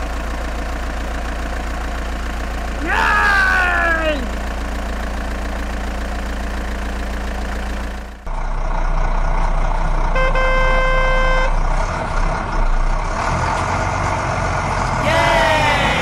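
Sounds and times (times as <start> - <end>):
truck engine running: 0.0 - 16.0
truck horn blast: 10.1 - 11.6.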